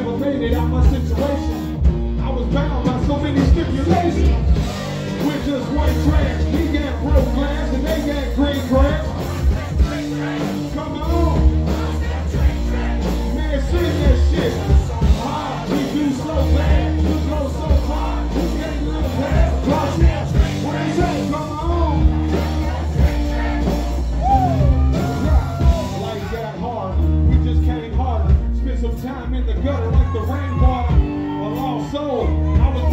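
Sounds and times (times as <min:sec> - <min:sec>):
man rapping into microphone: 0:00.0 - 0:23.6, 0:24.9 - 0:32.9
loud music with heavy bass beat: 0:00.2 - 0:26.5.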